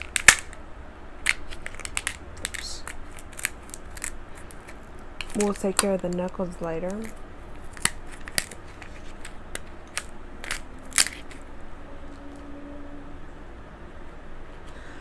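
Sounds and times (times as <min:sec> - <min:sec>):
crab shells cracking: 0:00.0 - 0:00.6, 0:01.2 - 0:11.5.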